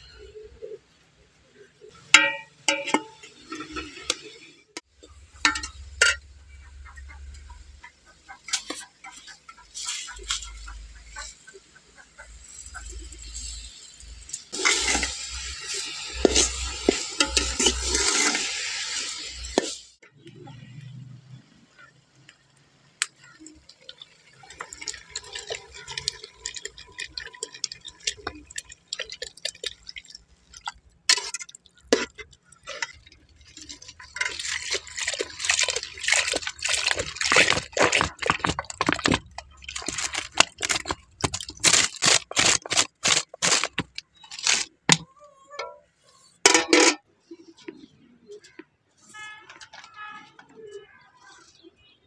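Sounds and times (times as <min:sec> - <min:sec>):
metal ladle scraping a pot: 0:02.1 - 0:07.3, 0:12.5 - 0:19.8, 0:31.1 - 0:47.4
milk pouring into a pot: 0:23.6 - 0:41.6.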